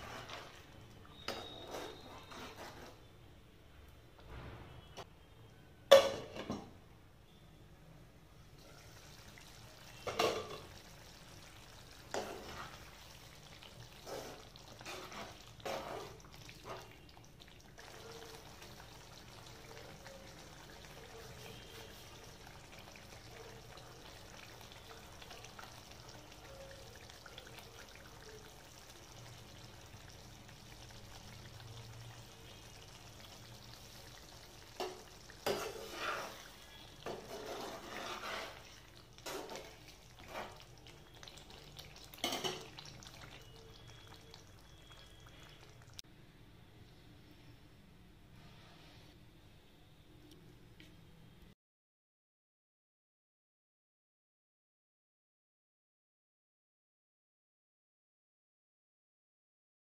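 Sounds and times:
metal spatula scraping pan: 0.0s - 0.6s, 1.2s - 3.0s, 13.9s - 16.9s, 34.8s - 40.7s
curry sizzling in a pan: 0.0s - 3.0s, 8.6s - 46.0s.

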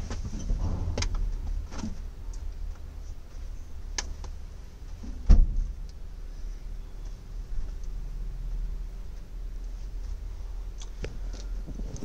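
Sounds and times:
low rumble: 0.2s - 10.7s
knock with a thud: 0.6s - 1.5s.

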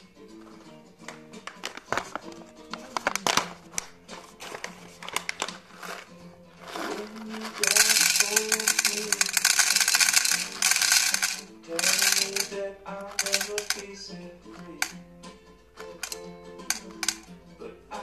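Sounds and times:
guitar music: 0.0s - 18.0s
coffee beans rattling into glass jar: 5.2s - 14.0s, 14.6s - 15.0s, 15.8s - 17.3s
handling clicks: 6.7s - 15.0s, 15.8s - 17.4s.

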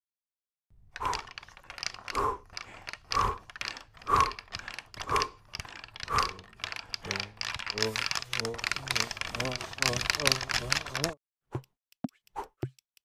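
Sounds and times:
rhythmic breathy huffs: 1.0s - 11.2s.

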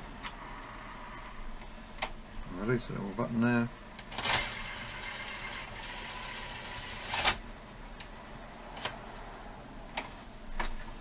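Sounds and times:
tape deck motor and gears whirring: 4.0s - 9.2s, 9.9s - 11.0s.

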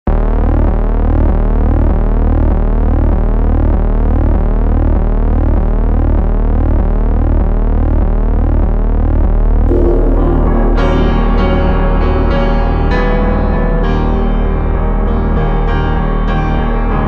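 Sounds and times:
electronic ambient music: 9.6s - 17.0s.

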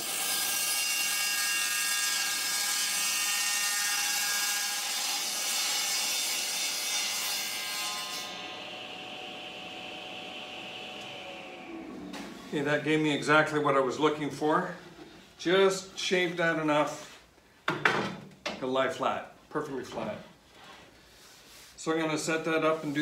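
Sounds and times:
table saw cutting wood: 0.0s - 15.0s.

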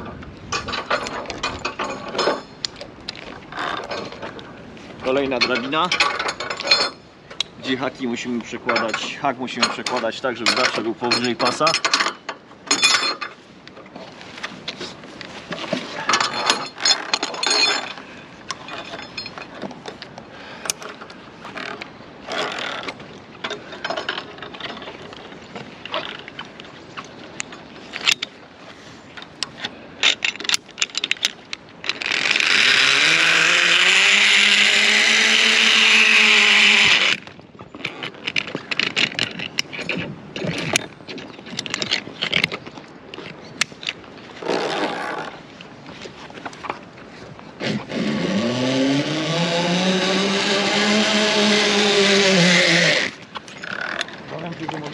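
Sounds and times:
metal carabiners clinking: 0.5s - 4.4s, 5.0s - 13.4s, 14.7s - 45.3s
zip-line trolley running on cable: 31.9s - 37.2s, 47.6s - 54.0s.

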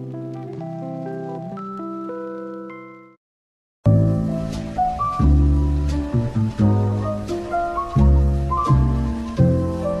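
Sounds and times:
deep bass: 3.9s - 10.0s.

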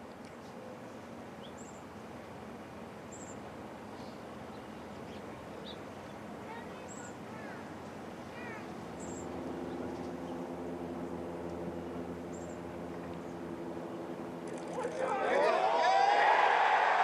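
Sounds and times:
steady low hum: 0.0s - 17.0s
small birds chirping: 0.3s - 2.3s, 3.0s - 14.2s.

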